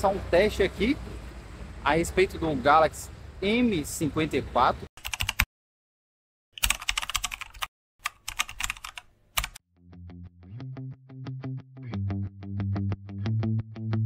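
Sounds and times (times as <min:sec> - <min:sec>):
keyboard typing clicks: 0:05.0 - 0:05.5, 0:06.6 - 0:09.6
plucked guitar music: 0:09.8 - 0:14.0.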